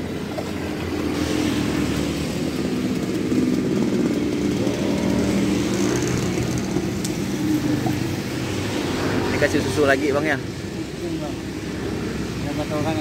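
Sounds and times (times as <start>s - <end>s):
small engine running: 0.0s - 10.4s.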